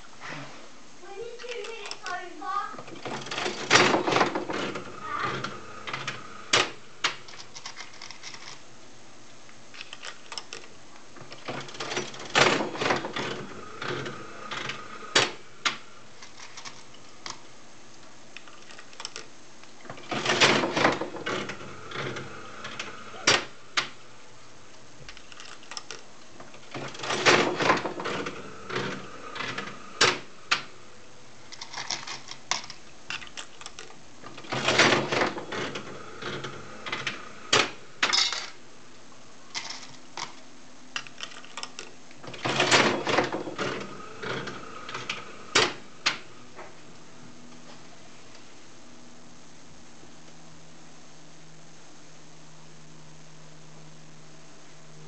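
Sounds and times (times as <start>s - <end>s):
slot machine reels whirring: 2.9s - 8.6s, 11.3s - 17.1s, 19.9s - 24.2s, 25.2s - 30.9s, 34.2s - 38.6s, 42.3s - 46.4s
slot machine reels clunking: 3.0s - 8.5s, 11.4s - 17.0s, 19.9s - 24.0s, 26.6s - 30.7s, 34.2s - 38.6s, 42.3s - 46.4s.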